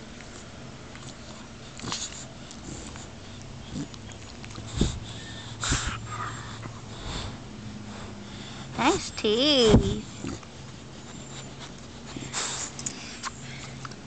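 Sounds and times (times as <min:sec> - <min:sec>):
puppy breathing: 0:00.0 - 0:14.0
puppy licking: 0:00.1 - 0:05.0.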